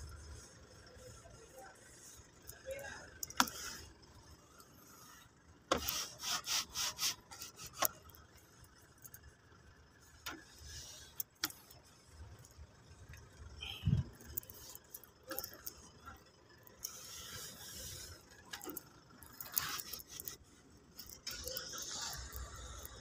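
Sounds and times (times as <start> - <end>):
cloth rubbing on plastic and rubber: 5.7 - 7.9.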